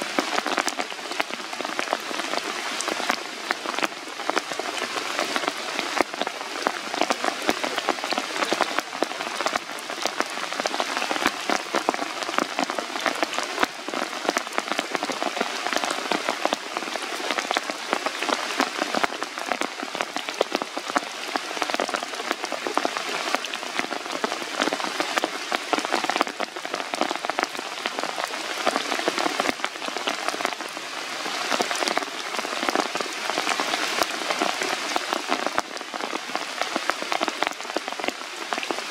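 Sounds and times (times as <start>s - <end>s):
rain falling on leaves: 0.0s - 38.9s.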